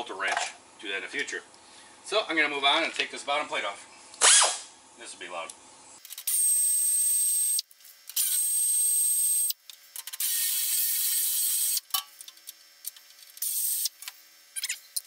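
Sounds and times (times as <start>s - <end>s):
pneumatic wrench hiss and whine: 4.2s - 4.7s, 6.0s - 12.0s, 12.8s - 15.0s.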